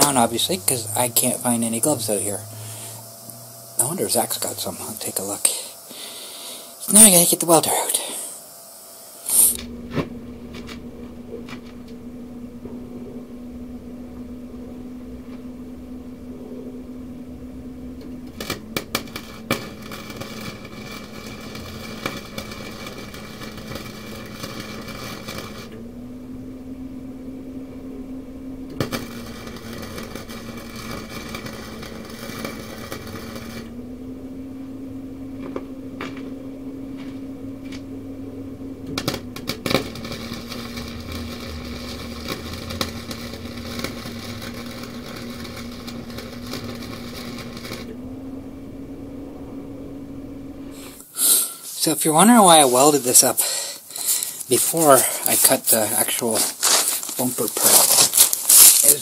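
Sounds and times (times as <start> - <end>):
welding arc crackling: 0.0 - 59.0
welding machine hum: 0.0 - 59.0.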